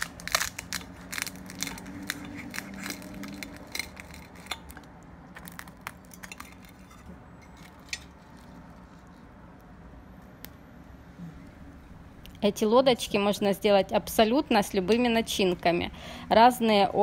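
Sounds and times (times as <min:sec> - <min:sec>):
crisp crust crunching: 0:00.0 - 0:09.3.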